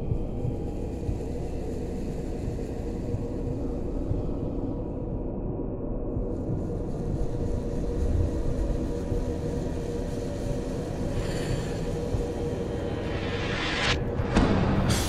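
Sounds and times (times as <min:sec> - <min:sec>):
low rumbling drone: 0:00.0 - 0:15.0
hiss: 0:06.6 - 0:14.0.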